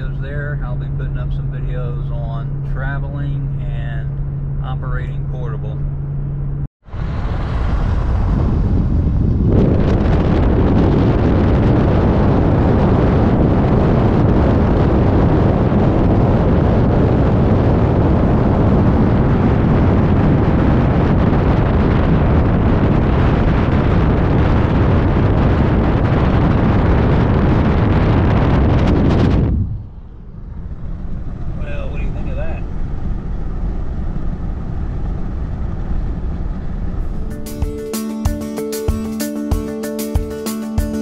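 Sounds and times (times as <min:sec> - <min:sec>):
tyre and road noise: 0:00.0 - 0:41.0
wind blasting across microphone: 0:06.8 - 0:37.3.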